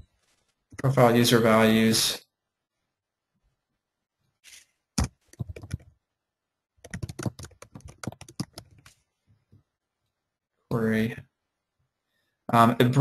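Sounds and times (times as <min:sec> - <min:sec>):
typing on computer keyboard: 0:05.0 - 0:05.9, 0:06.8 - 0:09.0.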